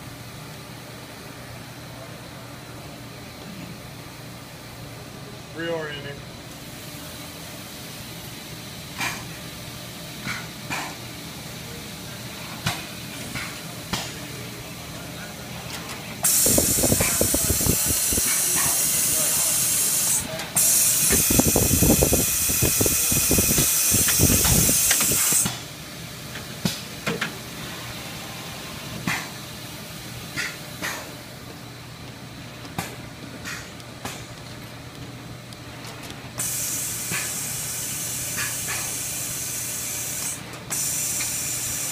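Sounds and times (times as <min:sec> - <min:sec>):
machine running: 0:14.3 - 0:25.6
compressed air hissing: 0:16.2 - 0:25.6, 0:36.4 - 0:41.9.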